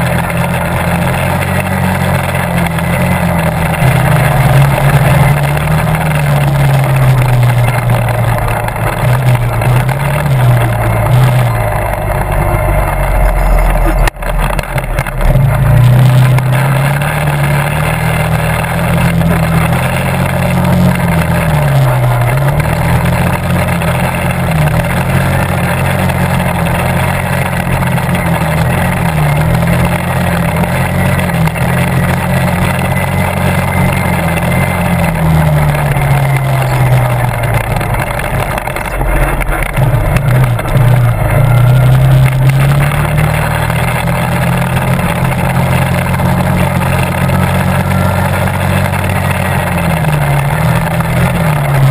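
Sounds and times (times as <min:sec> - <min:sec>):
quad bike engine revving: 0:00.0 - 0:51.9.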